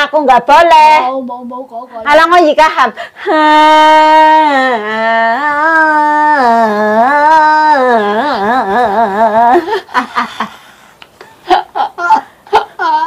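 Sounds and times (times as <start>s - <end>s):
woman singsong wailing: 3.2s - 10.0s, 11.5s - 13.0s
woman laughing: 8.6s - 10.6s, 11.4s - 13.0s.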